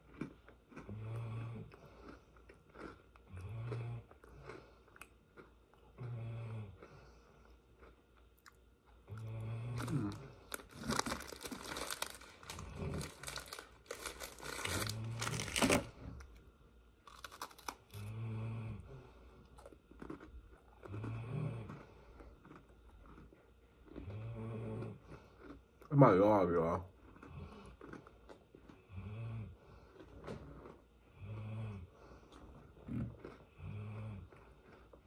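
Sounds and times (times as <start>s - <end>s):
cookies being crunched and chewed: 0.0s - 18.2s, 19.2s - 29.0s, 29.6s - 31.4s, 32.0s - 35.0s
plastic package crinkling: 9.8s - 15.9s.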